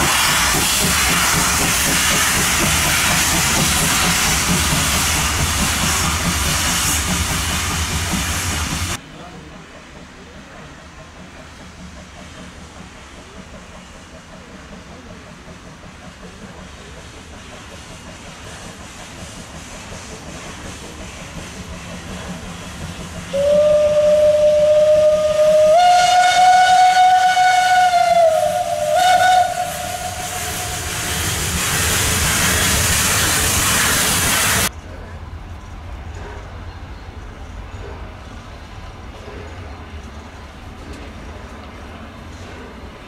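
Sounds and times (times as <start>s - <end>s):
hiss of escaping steam: 0.0s - 9.0s, 10.1s - 34.7s
steam locomotive approaching: 0.0s - 43.0s
steam whistle blasts: 23.3s - 31.3s.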